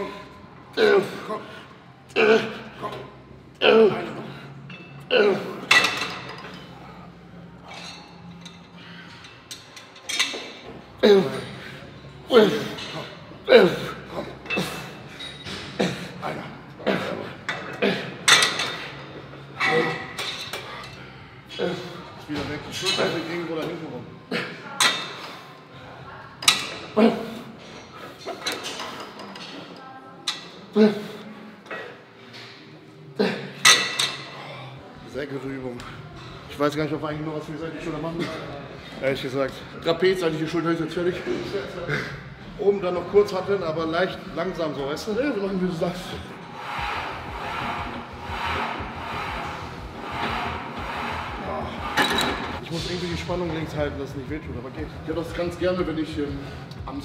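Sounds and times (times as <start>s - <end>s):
steady low hum: 45.6s - 57.0s
gym equipment clanking: 46.9s - 52.7s.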